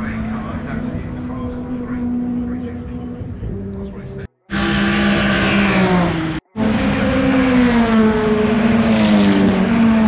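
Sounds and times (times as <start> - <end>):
race cars passing at high revs: 4.5 - 10.0.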